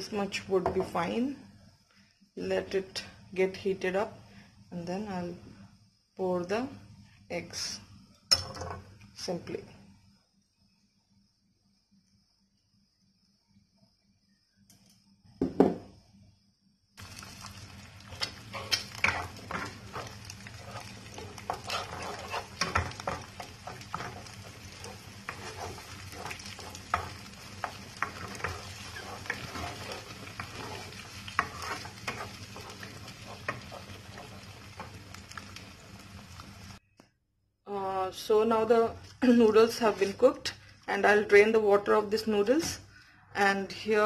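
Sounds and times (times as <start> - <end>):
eggs sizzling in a pan: 16.9 - 36.8, 38.3 - 42.8
wooden spatula scraping a pan: 18.1 - 35.4, 39.4 - 40.4.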